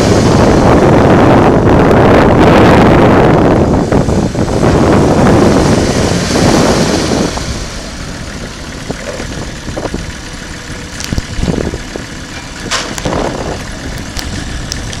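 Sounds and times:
tractor diesel engine running: 0:00.0 - 0:15.0
wind buffeting microphone: 0:00.0 - 0:15.0
tyres on gravel: 0:06.0 - 0:15.0.

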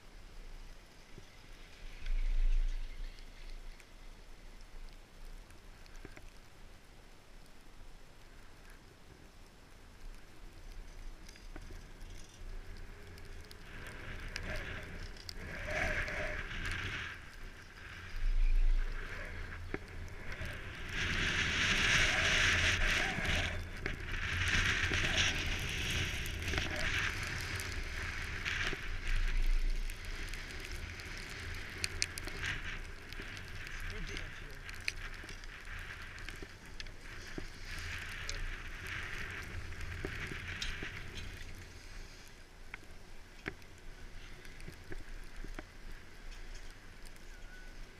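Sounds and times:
wind buffeting microphone: 0:12.7 - 0:41.7.

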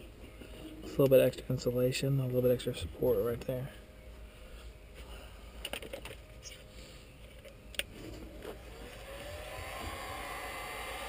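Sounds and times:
heat gun fan blowing: 0:08.2 - 0:11.0.

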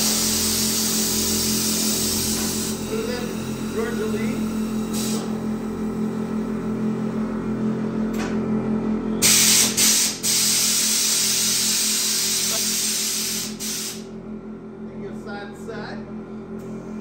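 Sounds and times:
air hissing from suspension: 0:00.0 - 0:03.2, 0:04.9 - 0:05.4, 0:09.2 - 0:14.1
steady low hum: 0:00.0 - 0:17.0.

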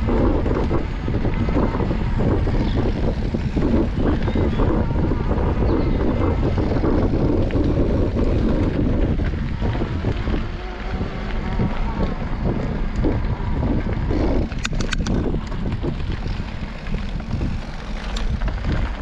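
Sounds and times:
bike tyres rolling on gravel: 0:00.0 - 0:19.0
wind rushing over microphone: 0:00.0 - 0:19.0
sharp clicks: 0:14.4 - 0:15.6.

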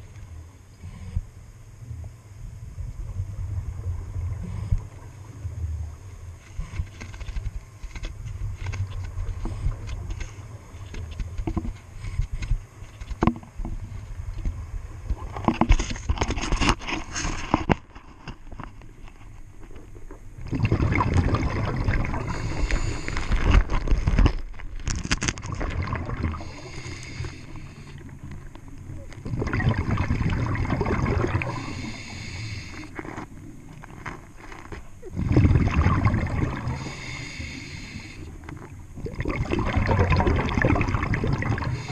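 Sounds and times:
low underwater rumble: 0:00.0 - 0:16.3, 0:18.4 - 0:41.9
exhaled bubbles rushing underwater: 0:19.8 - 0:24.3, 0:25.3 - 0:33.9, 0:35.0 - 0:41.9.

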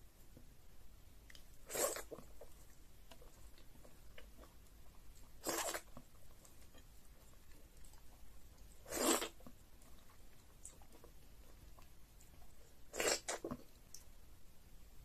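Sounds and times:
lip clicks: 0:01.2 - 0:02.2
faint chewing: 0:01.2 - 0:14.2
loud slurps: 0:01.7 - 0:02.2, 0:05.4 - 0:05.9, 0:08.9 - 0:09.4, 0:12.9 - 0:13.5.

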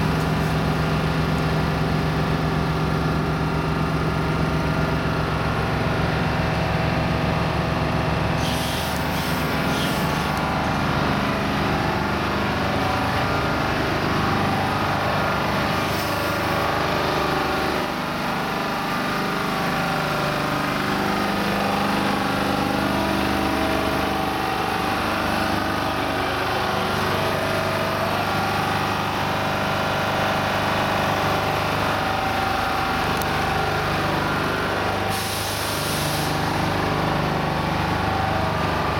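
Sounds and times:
truck diesel engine running: 0:00.0 - 0:38.9
short hisses: 0:08.4 - 0:10.4.

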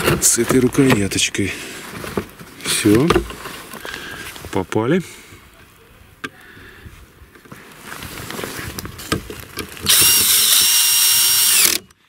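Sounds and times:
handling clicks and knocks: 0:08.7 - 0:10.0
cordless screwdriver motor: 0:09.9 - 0:12.0.

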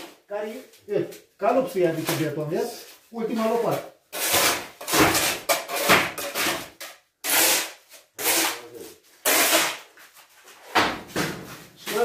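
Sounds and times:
shovel scraping wet concrete: 0:04.2 - 0:09.9.

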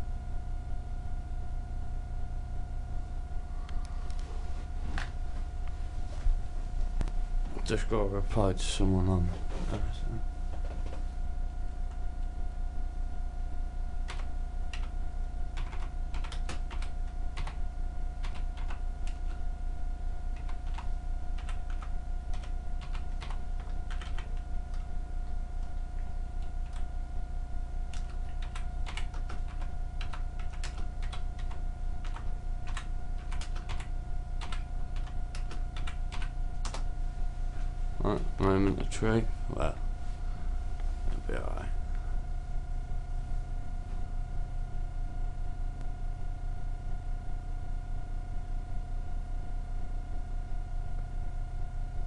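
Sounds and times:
steady hum with thin whine: 0:00.0 - 0:52.0
typing on computer keyboard: 0:15.6 - 0:17.6, 0:18.2 - 0:19.4, 0:20.4 - 0:24.9, 0:27.9 - 0:36.9.

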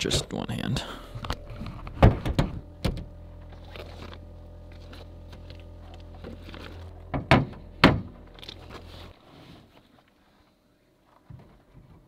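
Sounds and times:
steady low hum: 0:00.0 - 0:11.0
knocks on metal truck bed: 0:07.1 - 0:08.2.

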